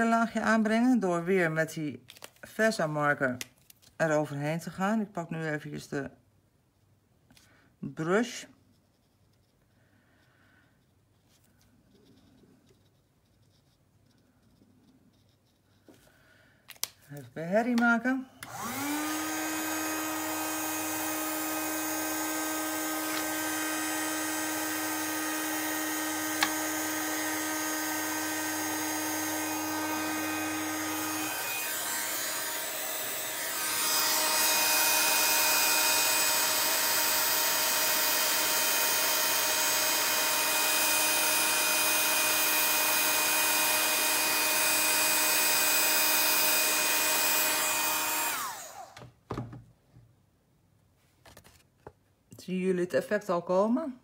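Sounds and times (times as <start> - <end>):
heat gun blowing: 18.4 - 49.1.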